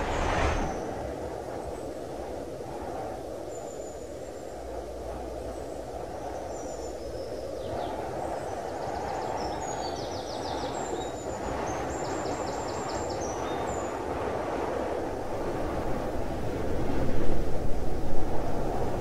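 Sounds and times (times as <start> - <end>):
low rushing wind-like ambience: 0.0 - 11.8, 12.5 - 19.0.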